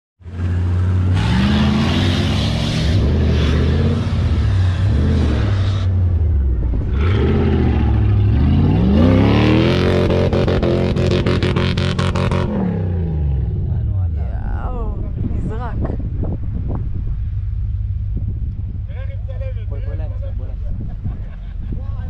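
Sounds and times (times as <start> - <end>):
engine revving hard: 1.1 - 5.9, 6.9 - 13.6.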